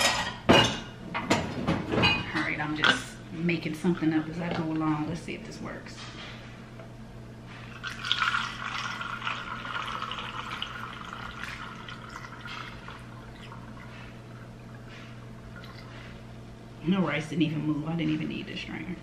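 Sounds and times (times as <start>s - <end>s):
water pouring through a strainer: 7.8s - 14.1s.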